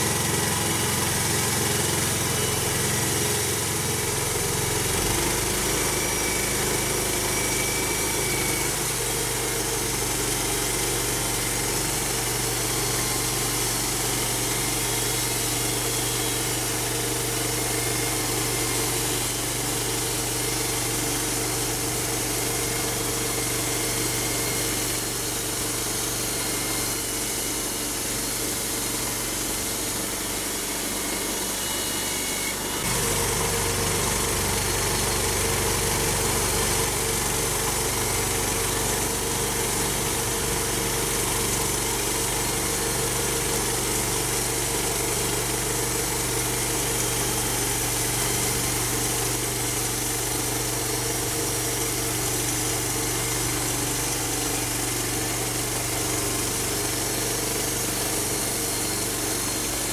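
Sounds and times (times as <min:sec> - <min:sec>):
band saw blade cutting wood: 0:00.0 - 0:59.9
sawmill engine running under load: 0:00.0 - 0:59.9.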